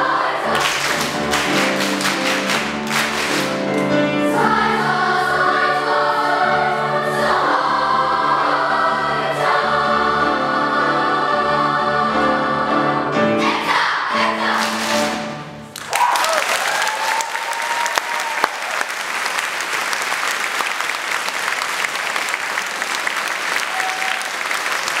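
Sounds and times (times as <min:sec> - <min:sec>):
children's choir singing: 0:00.0 - 0:15.6
audience applause: 0:00.5 - 0:03.9, 0:14.6 - 0:25.0.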